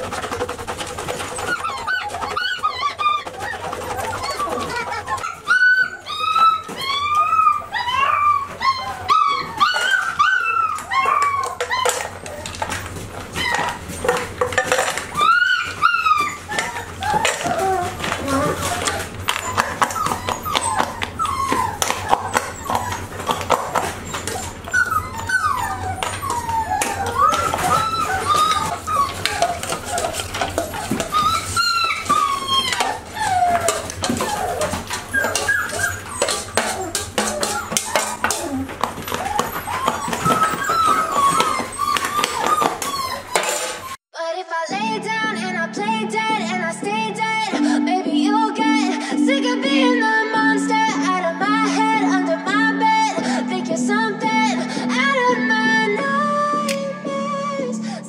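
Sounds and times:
puppies whining and yipping: 0.0s - 44.1s
spoon clinking on metal bowls: 13.6s - 15.2s, 16.2s - 44.0s.

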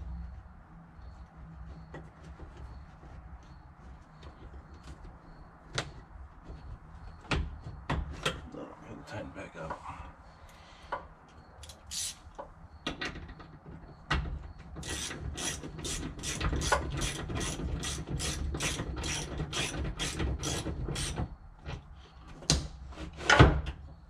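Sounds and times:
ratchet wrench clicking: 11.6s - 12.2s, 14.8s - 21.2s.

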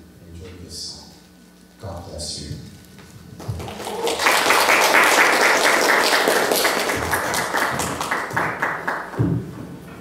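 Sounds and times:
audience applauding: 3.4s - 9.3s.

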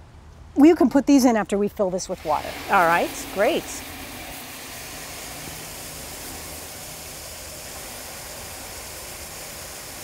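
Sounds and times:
water spraying into metal tub: 2.1s - 10.0s.

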